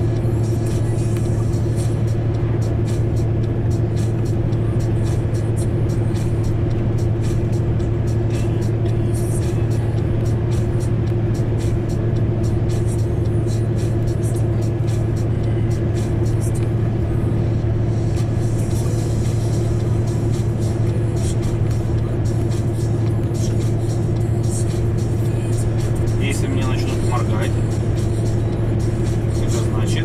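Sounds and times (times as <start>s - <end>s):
music playing: 0.0s - 30.0s
road noise inside cab: 0.0s - 30.0s
truck engine drone: 0.0s - 30.0s.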